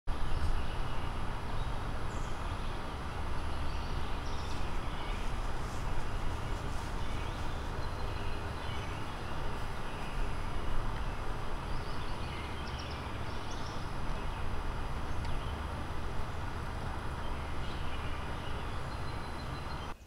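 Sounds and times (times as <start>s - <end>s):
steady low rumble: 0.1s - 20.0s.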